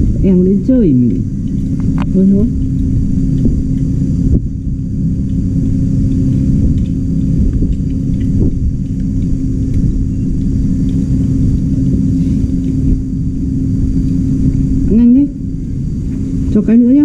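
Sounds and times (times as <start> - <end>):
constant hum: 0.0 - 17.0
low rumble: 0.0 - 17.0.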